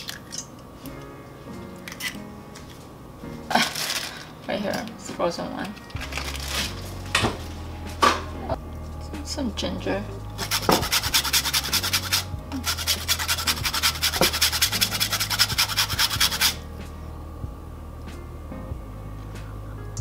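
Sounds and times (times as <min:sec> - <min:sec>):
grater scraping ginger: 0:10.4 - 0:16.6.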